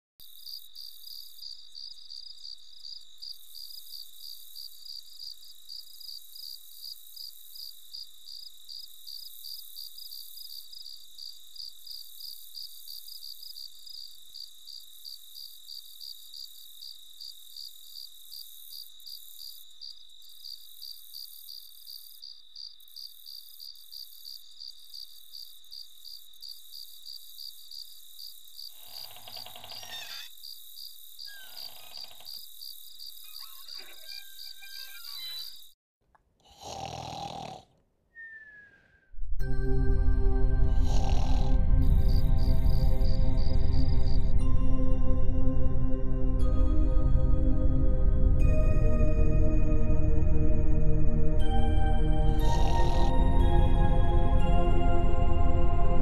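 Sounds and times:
crickets chirping: 0:00.2 - 0:35.8, 0:40.7 - 0:44.4, 0:52.4 - 0:53.2.

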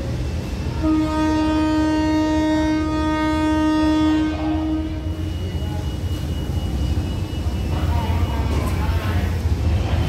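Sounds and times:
low train rumble: 0:00.0 - 0:10.0
locomotive air horn: 0:00.7 - 0:05.3.

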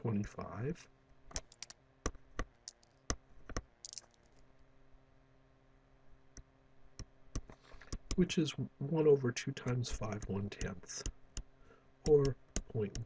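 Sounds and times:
faint steady hum: 0:00.0 - 0:13.0
stylus clicking on tablet screen: 0:06.3 - 0:08.2, 0:09.6 - 0:11.5, 0:12.1 - 0:13.0.

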